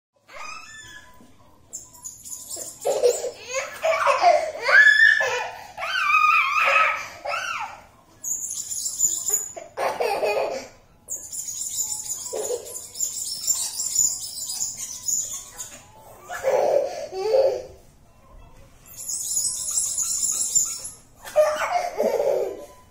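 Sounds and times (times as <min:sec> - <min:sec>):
toddler squealing and giggling: 0:00.3 - 0:01.3, 0:02.6 - 0:07.8, 0:12.2 - 0:17.8, 0:19.0 - 0:22.8.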